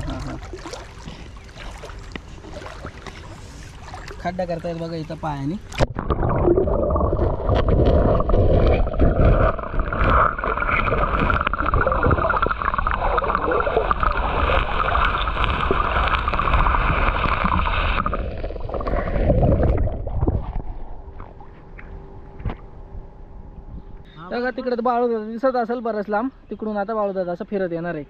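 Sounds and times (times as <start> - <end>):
muffled underwater rumble: 4.9 - 24.2
knocks and scrapes underwater: 5.7 - 22.7.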